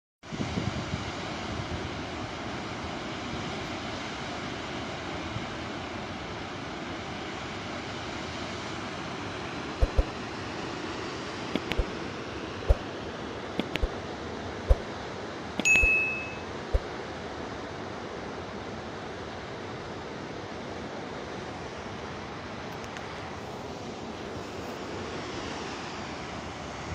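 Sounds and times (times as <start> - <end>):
sharp clicks: 11.6 - 11.9, 13.6 - 14.0
bell-like ding: 15.6 - 16.5.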